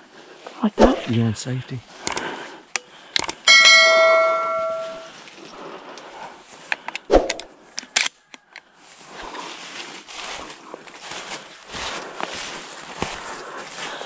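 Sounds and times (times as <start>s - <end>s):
sharp clicks: 2.0s - 3.5s
bell-like ding: 3.5s - 5.1s.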